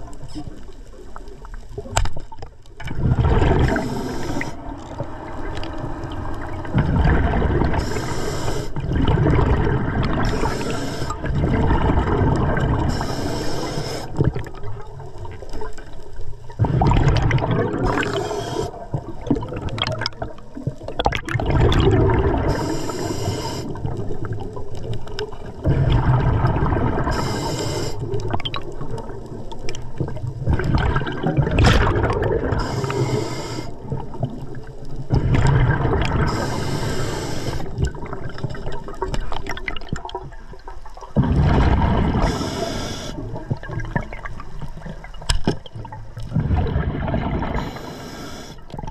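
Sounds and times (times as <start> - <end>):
exhaled bubbles gurgling: 0.0 - 48.9
regulator inhale hiss: 3.6 - 6.7, 7.7 - 8.8, 10.2 - 11.3, 12.8 - 14.4, 17.9 - 19.0, 22.4 - 23.8, 27.1 - 28.2, 32.5 - 34.0, 36.2 - 37.8, 42.2 - 43.4, 47.5 - 48.7.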